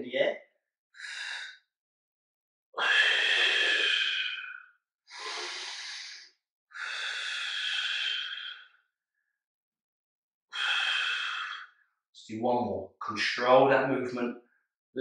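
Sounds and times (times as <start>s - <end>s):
man breathing hard: 1.0s - 1.6s, 2.8s - 8.8s, 10.5s - 11.8s.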